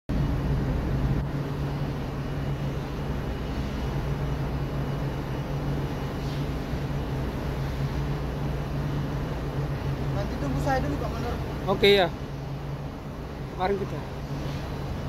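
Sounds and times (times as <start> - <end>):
ship engine drone: 0.1 - 15.0.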